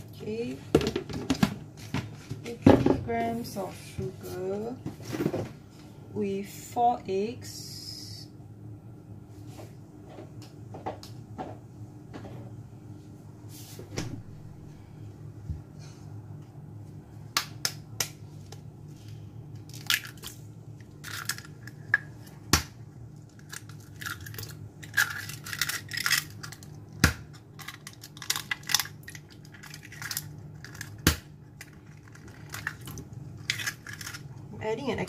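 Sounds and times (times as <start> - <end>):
eggshell crackling: 19.6 - 22.2, 23.1 - 34.5.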